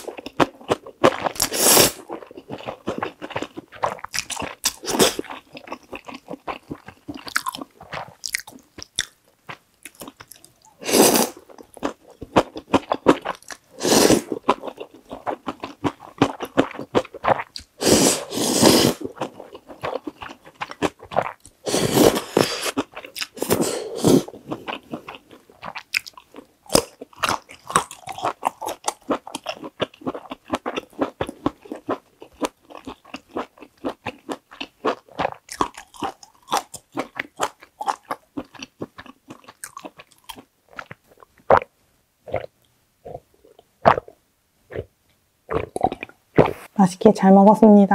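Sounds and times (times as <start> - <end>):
wet chewing clicks: 0.0 - 10.7, 19.1 - 21.6, 24.4 - 41.7, 45.5 - 46.7
noodle slurps: 1.4 - 2.1, 17.4 - 19.2.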